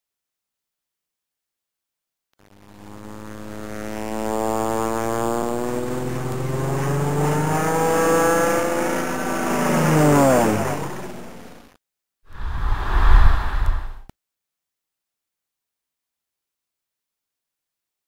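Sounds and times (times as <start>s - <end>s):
jet aircraft flying past: 2.8s - 11.6s, 12.3s - 14.1s.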